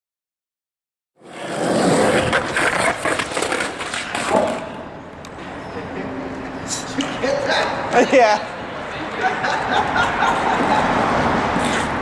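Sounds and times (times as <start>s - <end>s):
skateboard clacks and scrapes: 1.2s - 5.6s, 11.3s - 12.0s
skateboard wheels rolling on concrete: 1.2s - 12.0s
skateboard slam and clatter: 1.4s - 4.8s.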